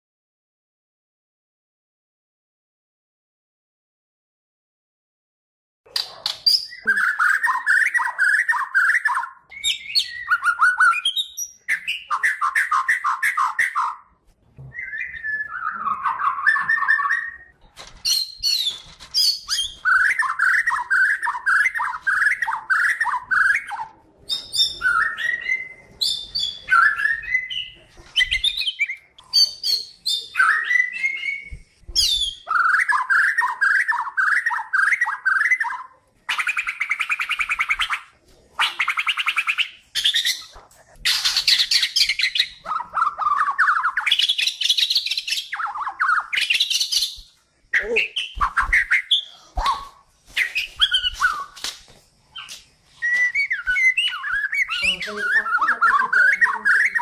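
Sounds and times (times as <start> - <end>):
bird singing varied phrases: 6.0 - 51.6, 52.3 - 57.0.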